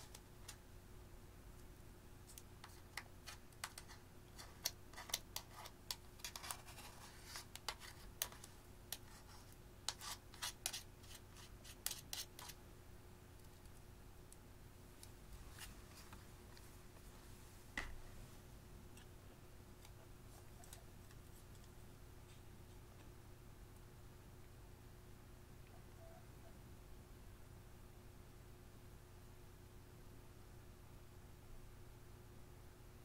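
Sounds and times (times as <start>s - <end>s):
metal tool scraping makeup: 9.9s - 12.6s.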